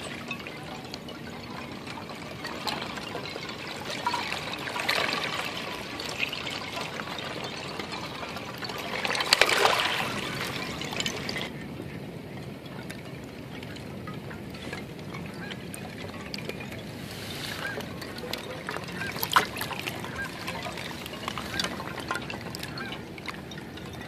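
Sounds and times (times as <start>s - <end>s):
ice chunks clinking together: 0.0s - 11.6s, 12.4s - 24.0s
small waves washing over rocks: 2.6s - 11.6s.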